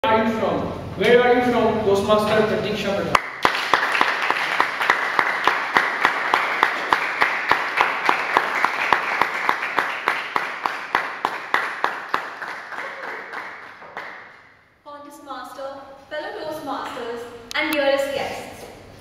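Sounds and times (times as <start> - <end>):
audience applauding: 3.2 - 14.4
nearby hands clapping steadily: 3.2 - 14.4.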